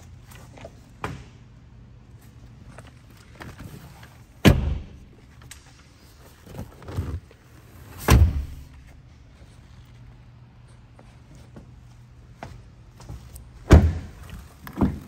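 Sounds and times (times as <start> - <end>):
car seatback thudding into place: 7.9 - 8.7.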